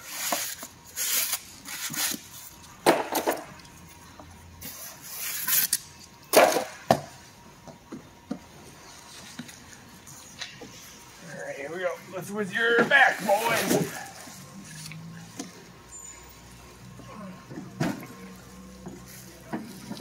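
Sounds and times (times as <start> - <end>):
plastic wrap and foam rustling: 12.6 - 14.9.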